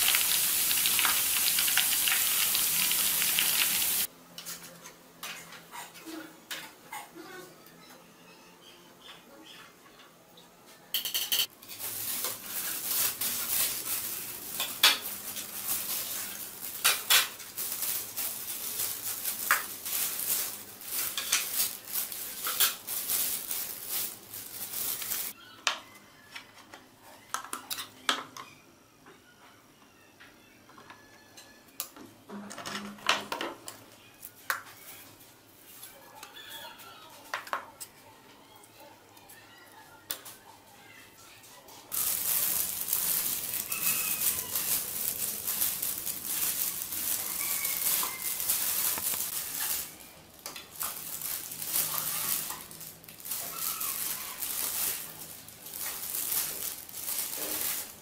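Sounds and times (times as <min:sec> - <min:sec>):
salad rustling in plastic bowl: 0:11.6 - 0:25.3, 0:41.9 - 0:58.0.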